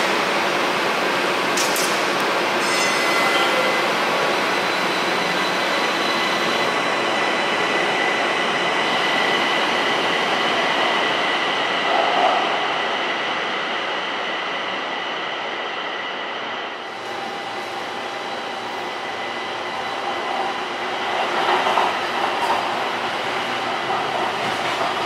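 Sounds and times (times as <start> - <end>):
light rail train pulling away: 0.0 - 11.8.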